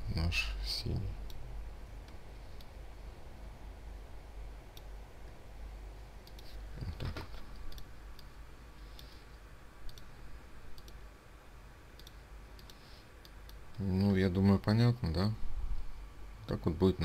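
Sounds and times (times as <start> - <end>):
low steady hum: 0.0 - 17.0
computer mouse clicks: 4.7 - 4.9, 6.2 - 8.3, 9.8 - 10.1, 10.7 - 11.0, 12.0 - 13.8.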